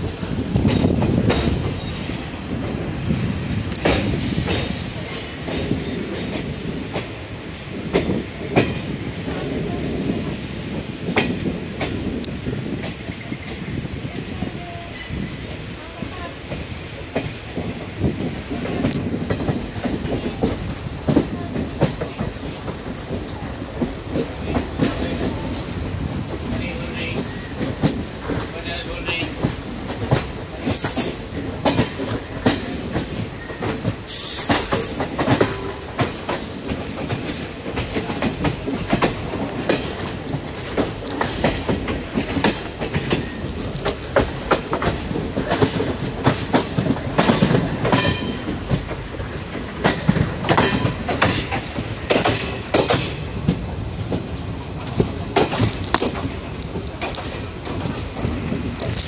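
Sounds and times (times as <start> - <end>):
train coaches rolling: 0.0 - 59.0
train wheels clacking on rails: 0.0 - 59.0
high wheel squeals: 3.1 - 3.8, 33.4 - 35.3, 44.5 - 45.6.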